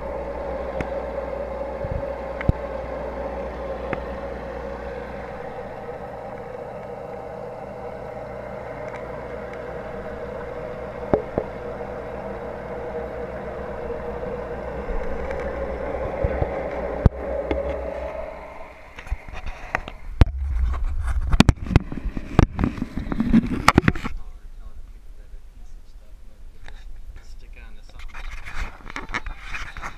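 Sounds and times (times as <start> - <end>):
steady mechanical hum: 0.0 - 29.9.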